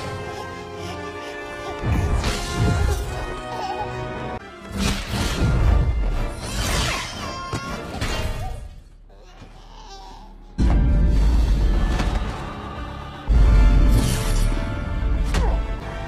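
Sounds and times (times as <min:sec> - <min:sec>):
orchestral score: 0:00.0 - 0:08.8, 0:10.6 - 0:16.0.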